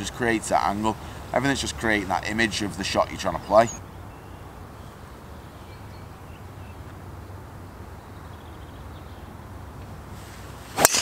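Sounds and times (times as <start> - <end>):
bird chirps: 3.2 - 9.4.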